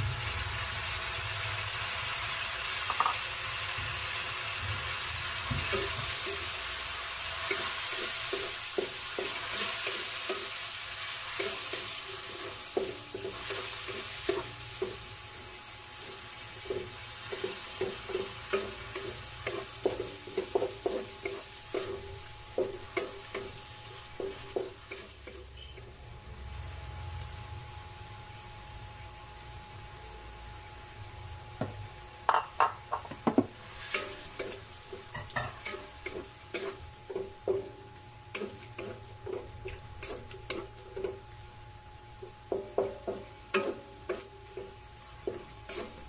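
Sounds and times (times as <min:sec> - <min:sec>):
food sizzling in a frying pan: 0:00.0 - 0:46.0
utensil scraping a pan: 0:33.7 - 0:37.6, 0:45.2 - 0:46.0.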